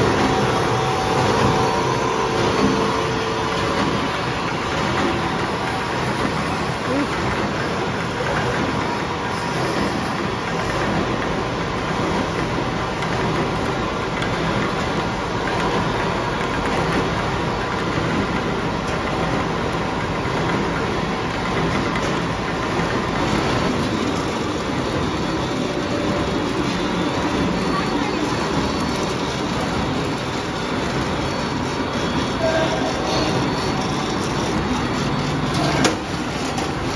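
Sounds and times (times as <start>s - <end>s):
faint machine whine: 0.0s - 11.1s
production line machinery: 0.0s - 36.9s.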